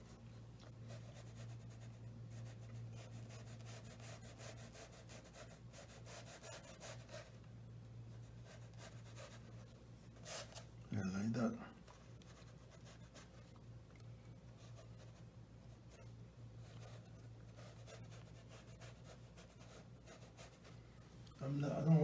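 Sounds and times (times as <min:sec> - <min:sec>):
brush strokes on paper: 0:00.8 - 0:07.4, 0:08.1 - 0:10.8, 0:14.5 - 0:20.8.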